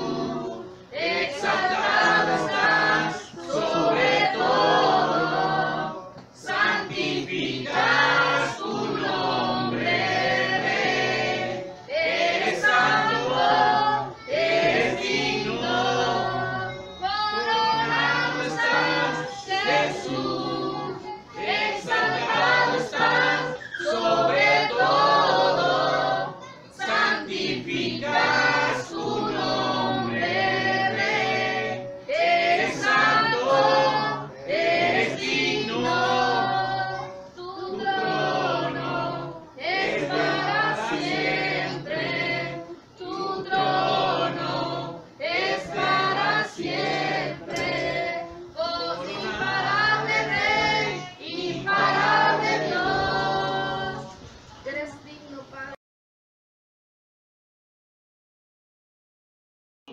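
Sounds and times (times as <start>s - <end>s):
congregation singing: 0.0s - 54.5s.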